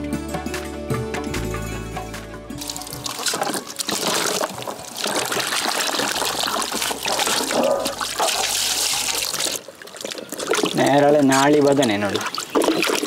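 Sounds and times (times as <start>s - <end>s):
water splashing into basin: 2.6s - 13.0s.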